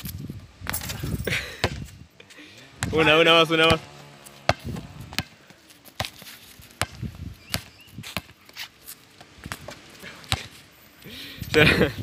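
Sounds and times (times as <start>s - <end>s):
basketball bouncing on concrete: 1.6s - 1.9s, 2.8s - 6.2s, 6.8s - 8.4s, 9.2s - 10.5s.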